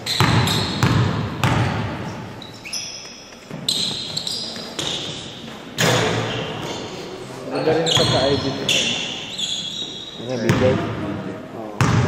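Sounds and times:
basketball bouncing: 0:00.0 - 0:02.1, 0:10.5 - 0:11.0, 0:11.8 - 0:12.0
sneakers squeaking on hardwood: 0:00.0 - 0:10.8.

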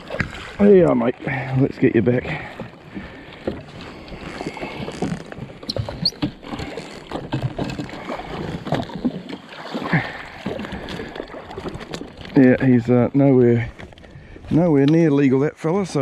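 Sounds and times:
knocks and clicks of fishing gear: 0:00.0 - 0:00.5, 0:02.5 - 0:09.4, 0:10.3 - 0:12.5, 0:13.7 - 0:14.2
water slapping against hull: 0:00.0 - 0:15.2.

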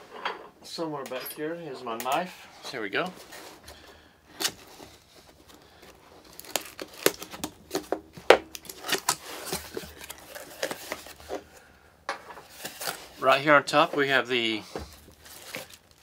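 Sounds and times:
plastic wrapping crinkling: 0:03.1 - 0:11.7, 0:12.4 - 0:16.0.

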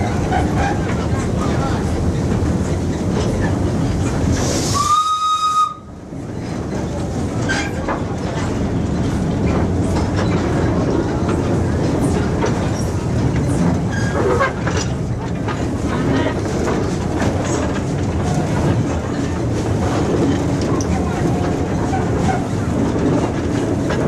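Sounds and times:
steam locomotive rumbling: 0:00.0 - 0:24.0
steam whistle blast: 0:04.7 - 0:05.9.

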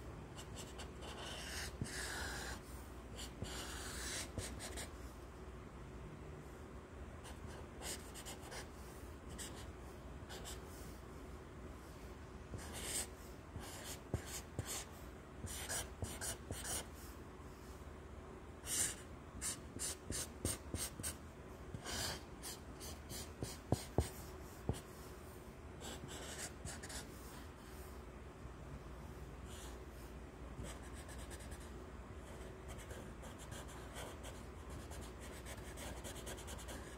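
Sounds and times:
marker scratching on paper: 0:00.4 - 0:04.9, 0:07.2 - 0:08.7, 0:09.3 - 0:09.7, 0:10.3 - 0:10.6, 0:12.6 - 0:16.9, 0:18.6 - 0:25.0, 0:25.8 - 0:27.4, 0:30.6 - 0:31.7, 0:32.4 - 0:36.9.

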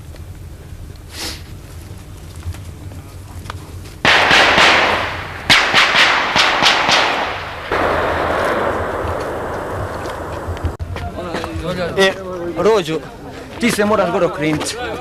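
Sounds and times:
sharp cracks: 0:04.0 - 0:10.8.

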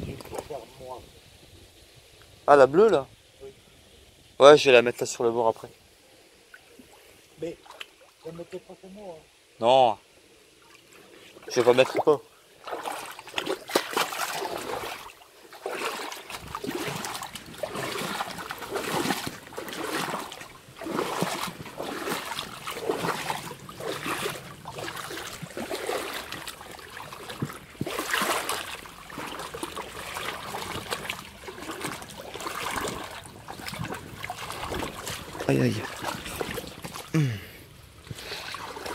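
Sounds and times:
footsteps wading through water: 0:06.5 - 0:08.3, 0:10.6 - 0:38.9.

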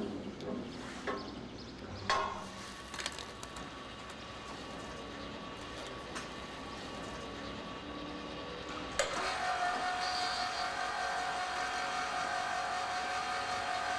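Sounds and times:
machine whine: 0:03.6 - 0:13.9.

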